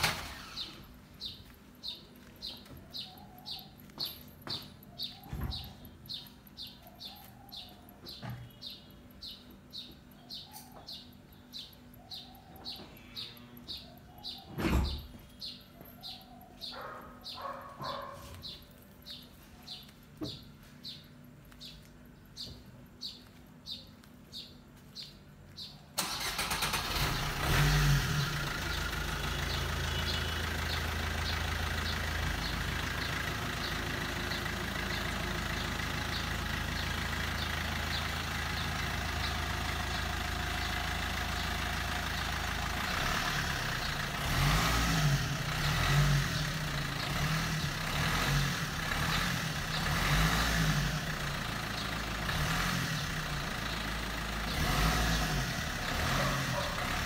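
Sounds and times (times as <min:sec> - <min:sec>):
diesel engine starting and idling: 0:00.0 - 0:03.9, 0:25.9 - 0:57.0
bird chirping: 0:00.5 - 0:50.3, 0:51.2 - 0:57.0.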